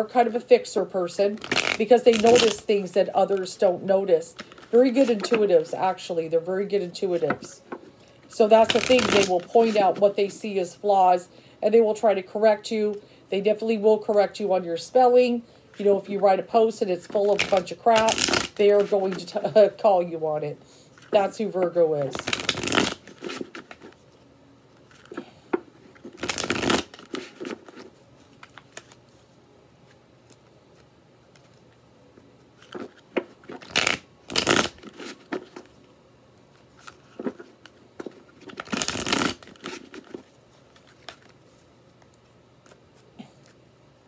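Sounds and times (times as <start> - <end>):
cards shuffling: 1.3 - 3.6, 4.2 - 6.0, 7.0 - 10.4, 17.0 - 19.6, 22.0 - 24.1, 24.8 - 29.2, 32.5 - 35.8, 36.6 - 43.6.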